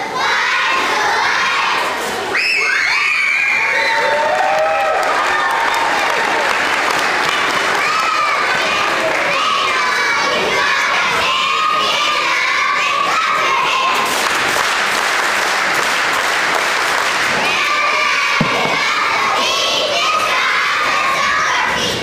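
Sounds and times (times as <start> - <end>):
crowd cheering: 0.2 - 22.0
thud: 18.4 - 19.1.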